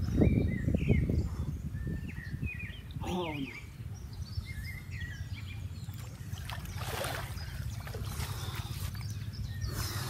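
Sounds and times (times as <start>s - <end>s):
steady low rumble: 3.6s - 10.0s
water splashing from wading: 5.9s - 9.1s.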